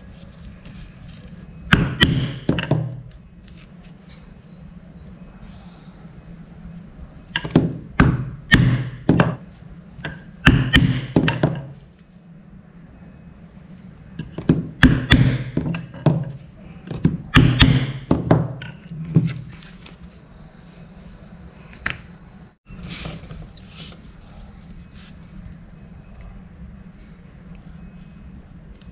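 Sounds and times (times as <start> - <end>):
mallet knocking on leather tools: 1.7 - 3.0, 7.4 - 9.4, 10.1 - 11.7, 14.2 - 19.3.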